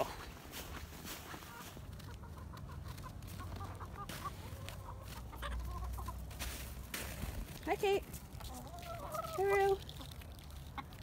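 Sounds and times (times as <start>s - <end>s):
hens clucking softly: 1.1s - 6.4s, 8.4s - 11.0s.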